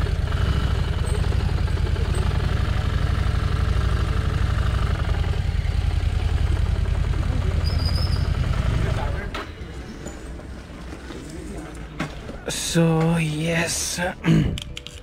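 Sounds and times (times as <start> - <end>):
motorcycle engine running: 0.0 - 9.4.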